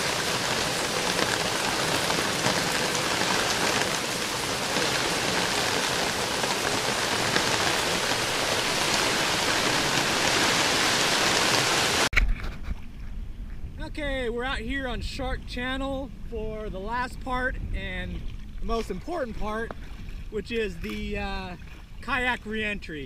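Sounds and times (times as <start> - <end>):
rain falling: 0.0 - 12.1.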